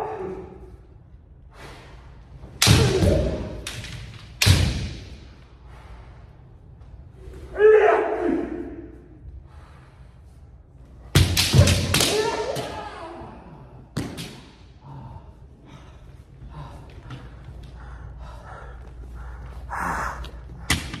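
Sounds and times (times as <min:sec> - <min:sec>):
bamboo sword cracking on armour: 0:11.2 - 0:12.6
person shouting: 0:12.0 - 0:13.6.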